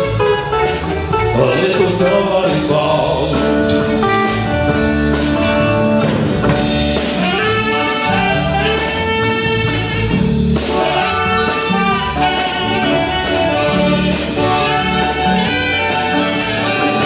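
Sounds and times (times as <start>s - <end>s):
drums: 0.0s - 17.0s
electric guitars: 0.0s - 17.0s
tenor saxophone solo: 6.7s - 17.0s.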